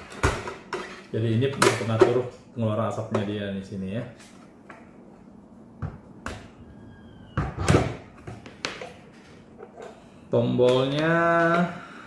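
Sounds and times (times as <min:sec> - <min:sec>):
faint squeak: 0:06.6 - 0:07.6.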